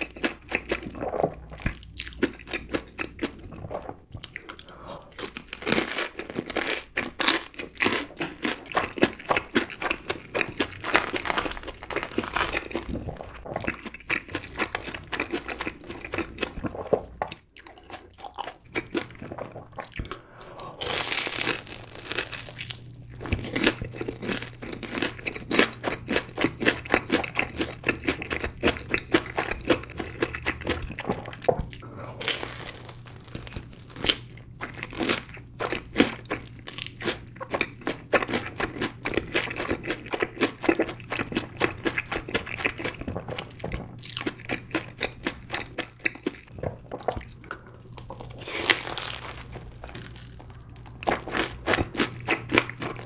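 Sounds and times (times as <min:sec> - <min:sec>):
crisp crunching and chewing: 0:00.0 - 0:20.2, 0:20.8 - 0:53.0.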